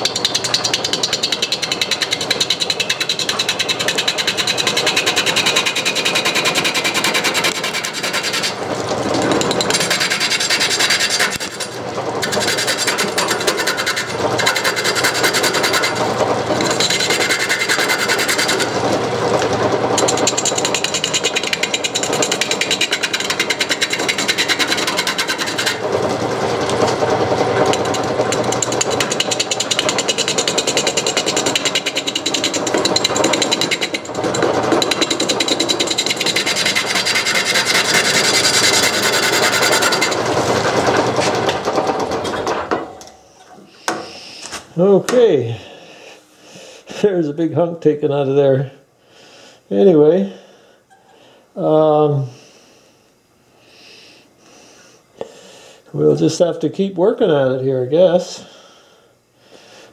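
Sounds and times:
lathe gouge chattering on wood: 0.0 - 42.6.

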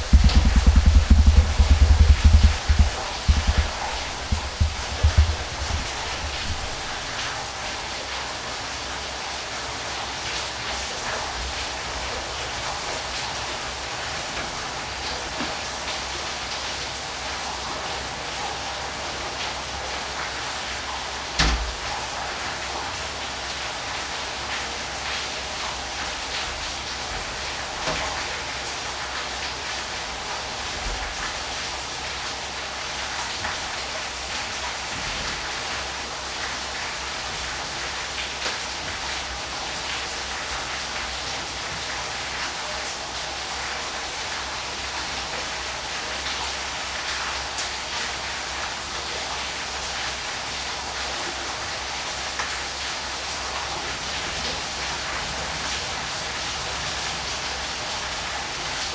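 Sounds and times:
waterfall rushing: 0.0 - 10.6
water splashes: 0.0 - 58.9.

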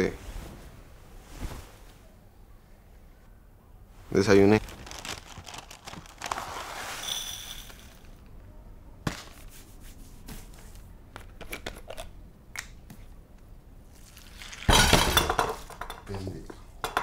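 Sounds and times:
crockery and pans clattering: 14.7 - 16.1, 16.8 - 17.0.

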